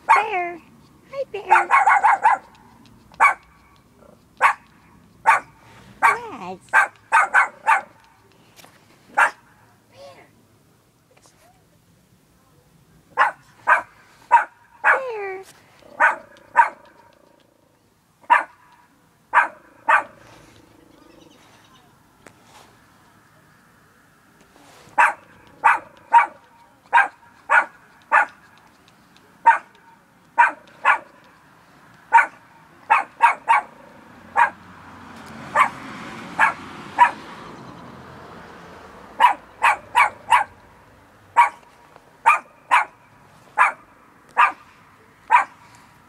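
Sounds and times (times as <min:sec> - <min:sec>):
small dog barking: 0:00.0 - 0:00.4, 0:01.4 - 0:08.3, 0:09.1 - 0:09.6, 0:13.1 - 0:15.2, 0:15.9 - 0:17.4, 0:18.2 - 0:20.3, 0:25.0 - 0:28.5, 0:29.4 - 0:31.3, 0:32.1 - 0:34.7, 0:35.5 - 0:35.8, 0:36.4 - 0:37.3, 0:39.2 - 0:40.6, 0:41.3 - 0:44.7, 0:45.3 - 0:45.7.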